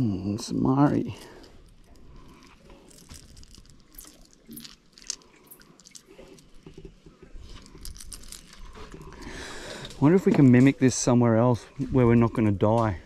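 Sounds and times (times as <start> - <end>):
fishing line clicks and rustles: 0.9 - 10.8.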